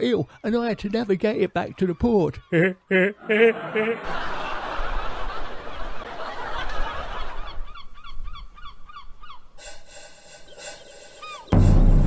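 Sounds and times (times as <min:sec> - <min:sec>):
honking bird calls: 0:00.0 - 0:04.4, 0:07.3 - 0:11.6.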